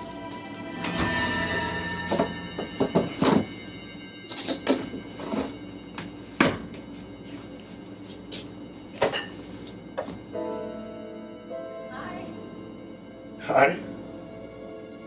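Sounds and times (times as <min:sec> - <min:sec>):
tense background music: 0:00.0 - 0:15.0.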